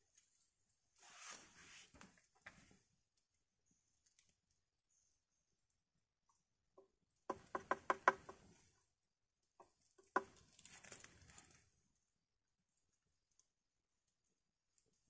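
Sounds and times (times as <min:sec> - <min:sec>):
rice scraped from tube: 0:01.0 - 0:02.0
hollow knocks on bamboo tube: 0:06.8 - 0:08.6, 0:09.6 - 0:10.4.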